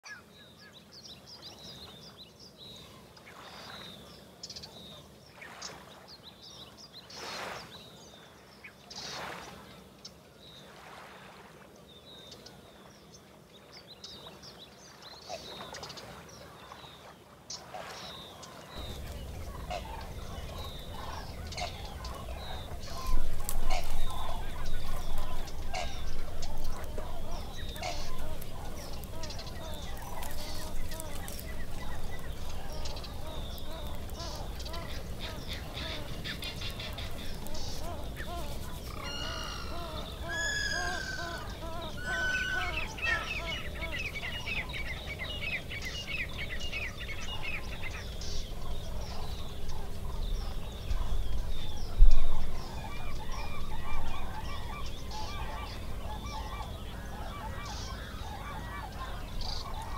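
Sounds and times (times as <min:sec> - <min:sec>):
small birds chirping: 0:11.8 - 0:59.9
twig fire crackling: 0:18.8 - 0:39.0
fowl calling: 0:18.8 - 0:44.7.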